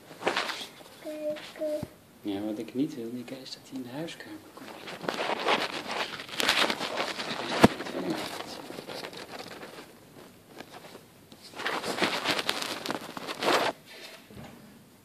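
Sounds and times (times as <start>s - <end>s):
fabric rustling: 0.0s - 1.8s, 4.5s - 13.8s.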